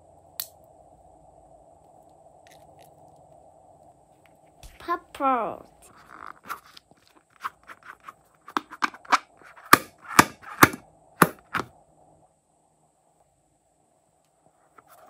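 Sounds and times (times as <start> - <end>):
rubber balloon clicks and taps: 8.5 - 11.7.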